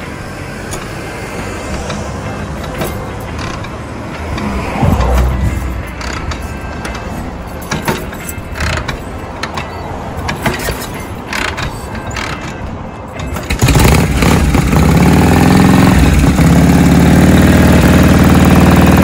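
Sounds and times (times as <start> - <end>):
motorcycle engine running lumpy: 13.2 - 19.0.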